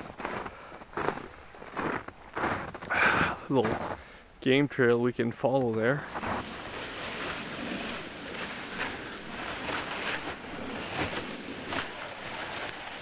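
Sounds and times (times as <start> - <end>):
footsteps in snow: 0.0 - 3.0, 3.6 - 4.0, 5.9 - 13.0
clothing rustling: 6.0 - 13.0.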